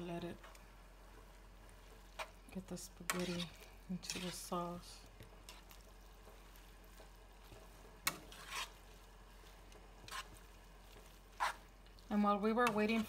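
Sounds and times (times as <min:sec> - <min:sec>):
tongs scraping pan: 0:03.0 - 0:04.6, 0:07.0 - 0:09.0, 0:09.9 - 0:10.4, 0:11.0 - 0:11.7.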